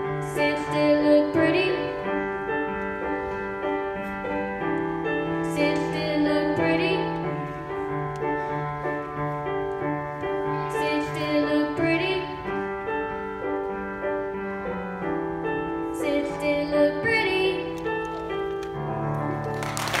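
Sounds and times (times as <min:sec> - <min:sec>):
piano chords: 0:00.0 - 0:20.0
girl singing into microphone: 0:00.1 - 0:02.2, 0:05.4 - 0:07.7, 0:10.2 - 0:12.7, 0:15.8 - 0:18.0.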